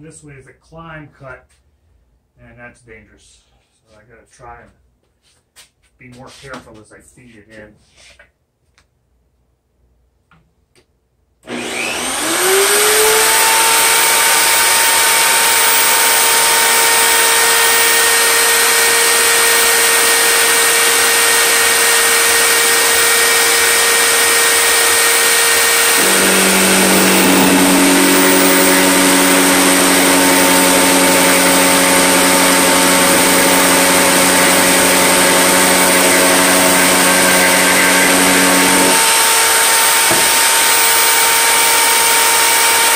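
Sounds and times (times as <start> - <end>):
router motor whining: 11.4 - 42.9.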